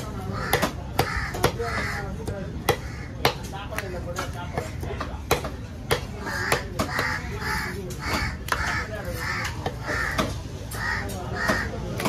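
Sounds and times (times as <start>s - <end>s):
crows cawing: 0.2s - 3.5s, 5.9s - 12.0s.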